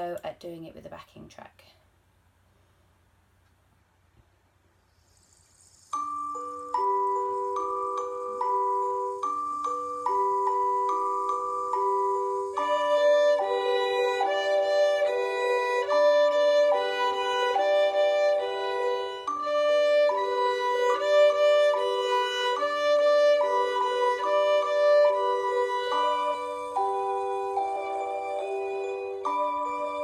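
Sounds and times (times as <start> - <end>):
violin bowing a two-note tune: 12.6 - 30.0.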